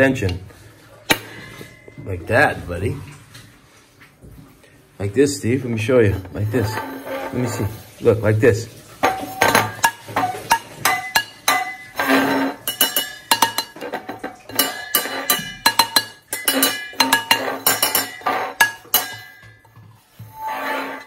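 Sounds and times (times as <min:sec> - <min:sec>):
cup banging with clinks: 0:09.0 - 0:19.8.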